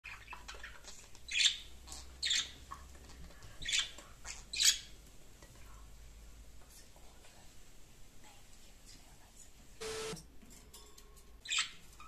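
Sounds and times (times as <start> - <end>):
budgerigars chirping and calling: 0.1 - 2.6, 3.6 - 4.9.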